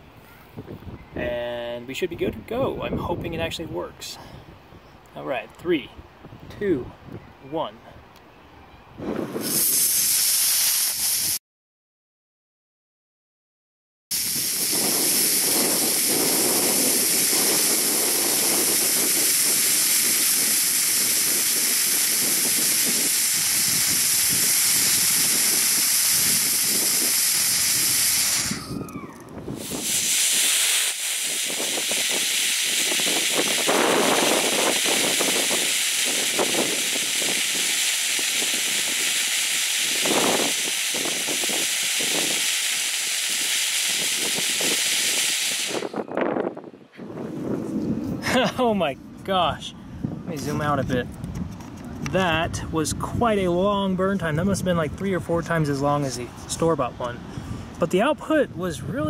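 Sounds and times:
wind rumbling on microphone: 0.0 - 10.1, 14.1 - 59.0
rocket motor hissing: 9.2 - 11.4, 14.1 - 46.1.

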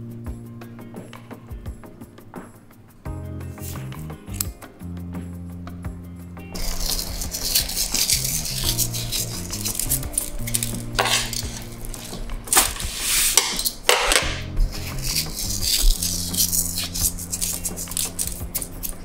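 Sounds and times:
background music: 0.0 - 19.0
metal tongs scraping a steel tray: 6.6 - 18.7.

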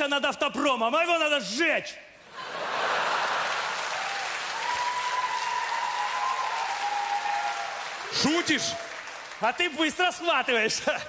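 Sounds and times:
audience applauding: 2.7 - 10.3.

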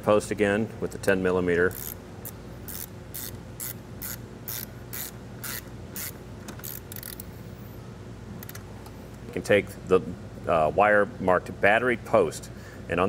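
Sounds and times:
hand ratchet clicking: 1.7 - 7.3.

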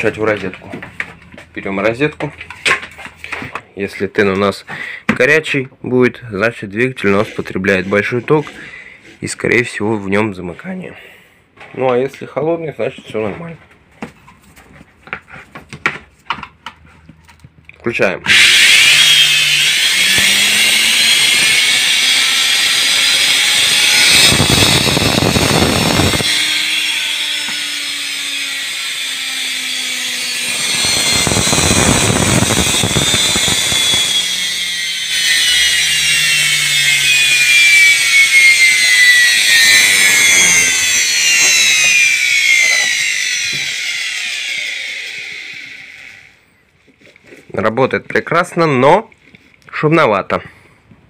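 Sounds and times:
electric motor high whine: 18.3 - 46.5.

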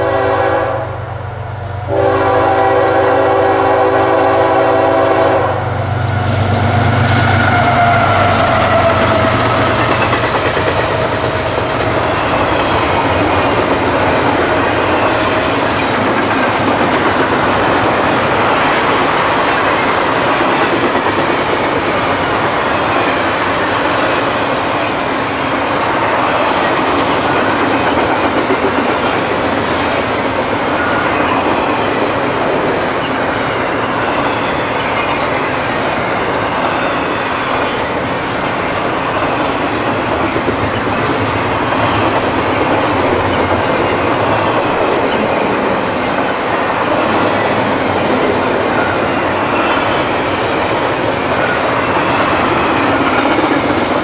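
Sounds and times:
locomotive horn: 0.0 - 1.1, 1.9 - 9.6
freight train rumbling past: 0.0 - 54.0
wheels clacking on rails: 3.7 - 54.0.

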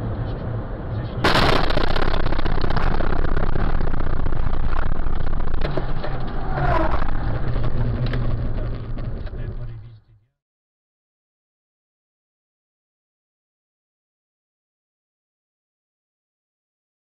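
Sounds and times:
car engine hum: 0.0 - 10.1
tyre and wind noise: 1.2 - 9.8.

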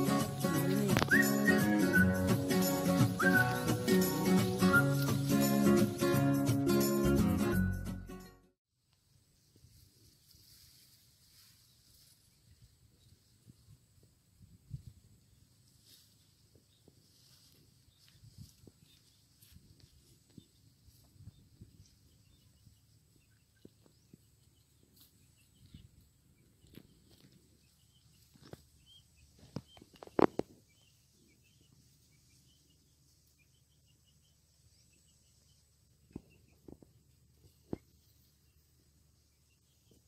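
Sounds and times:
rustling through rice plants: 3.2 - 6.2, 8.8 - 23.0.

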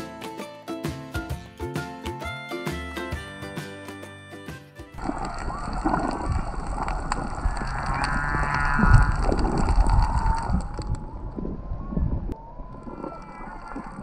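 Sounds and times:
humpback whale song underwater: 5.0 - 14.0
low rumbling water surges: 5.0 - 14.0.

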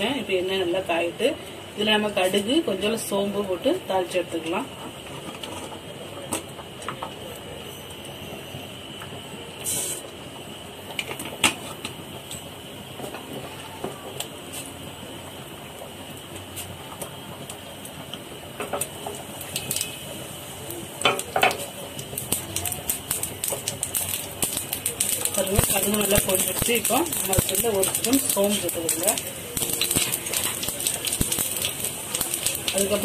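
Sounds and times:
seeds sizzling in hot oil: 7.6 - 33.0
seeds popping and crackling: 22.0 - 33.0.

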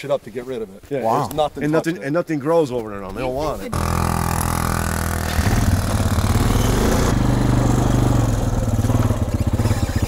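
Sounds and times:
quad engine running: 3.8 - 10.0.

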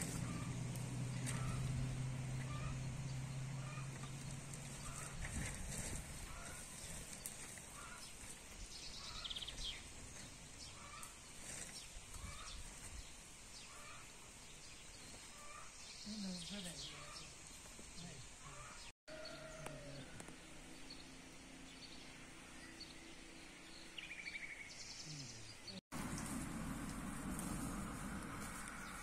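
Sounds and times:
birds calling: 0.0 - 29.0
steady low hum: 26.0 - 29.0.

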